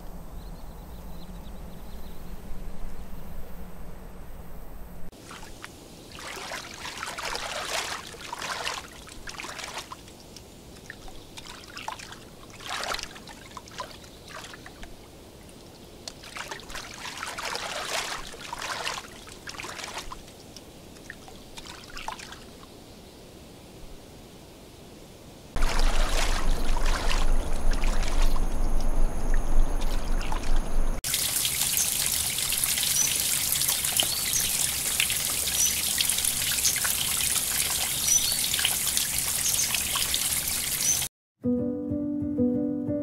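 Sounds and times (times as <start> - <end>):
water splashing and trickling: 5.1 - 22.7, 25.6 - 41.1.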